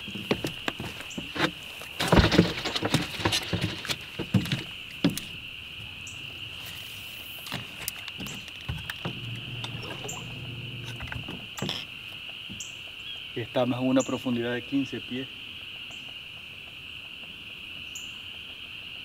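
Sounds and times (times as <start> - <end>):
high insect drone: 0.0 - 19.0
low steady hum: 8.8 - 12.2.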